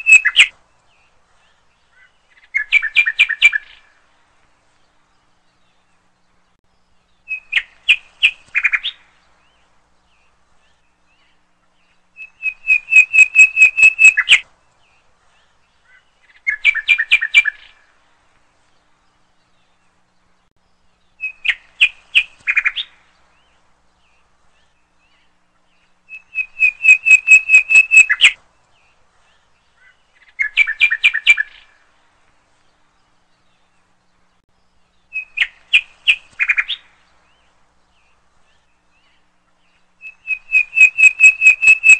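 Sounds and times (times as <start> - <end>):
bird chirping in trills: 0.0 - 4.0, 4.8 - 18.0, 18.6 - 31.9, 32.5 - 41.9.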